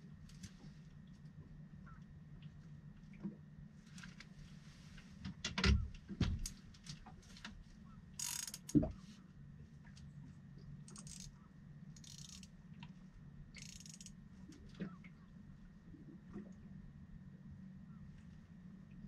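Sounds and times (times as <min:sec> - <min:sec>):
low steady hum: 0:00.0 - 0:19.0
fishing reel whirring and ratcheting: 0:08.2 - 0:08.8, 0:10.9 - 0:11.4, 0:12.0 - 0:12.5, 0:13.6 - 0:14.2
small clicks: 0:08.2 - 0:08.9, 0:10.9 - 0:11.4, 0:12.0 - 0:13.0, 0:13.6 - 0:14.6.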